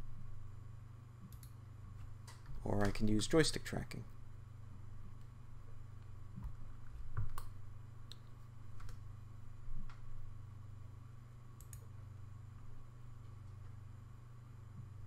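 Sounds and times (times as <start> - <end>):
steady low hum: 0.0 - 15.0
control clicks: 1.2 - 1.6, 2.2 - 3.1, 11.6 - 11.9.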